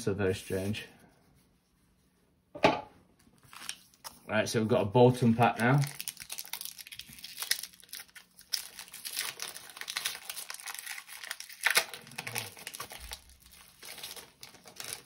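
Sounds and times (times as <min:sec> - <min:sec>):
foil wrapper crinkling: 0:03.4 - 0:04.2, 0:05.3 - 0:15.0
foil wrapper ripping: 0:05.4 - 0:15.0.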